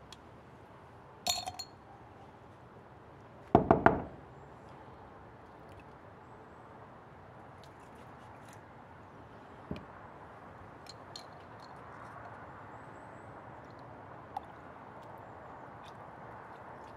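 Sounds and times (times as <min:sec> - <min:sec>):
glass jar clinking: 0:01.3 - 0:01.8.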